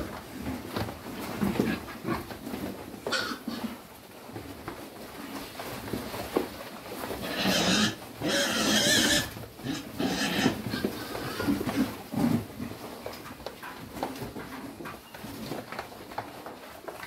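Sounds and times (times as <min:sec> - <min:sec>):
pigs grunting: 0:01.4 - 0:03.9, 0:07.1 - 0:12.7
pig squealing: 0:03.1 - 0:03.7, 0:07.2 - 0:11.6.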